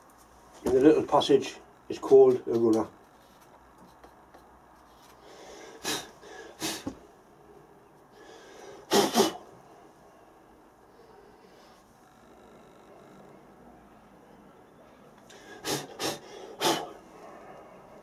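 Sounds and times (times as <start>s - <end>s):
puffs of breath blowing: 5.2s - 7.0s, 8.1s - 9.5s, 15.3s - 17.0s.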